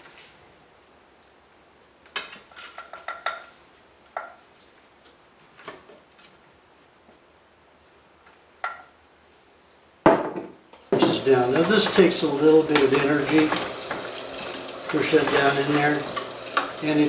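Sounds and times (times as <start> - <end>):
kitchenware clinking and knocking: 2.6 - 3.5, 10.1 - 16.8.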